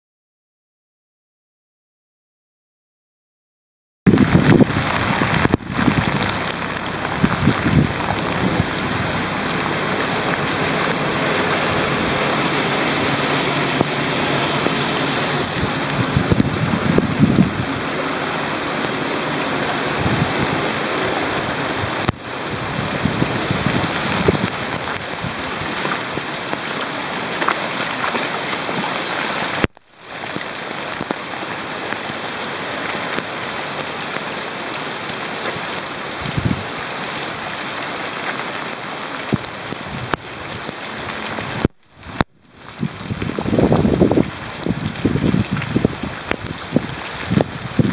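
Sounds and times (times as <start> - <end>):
heavy rain on pavement: 4.1 - 47.9.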